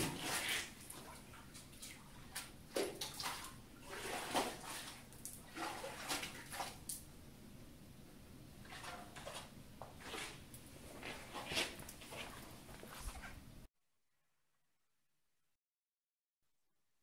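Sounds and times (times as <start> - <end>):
faint water splashes: 0.0 - 7.1, 8.6 - 13.0
water sloshing in a tank: 0.0 - 7.4, 8.5 - 13.7.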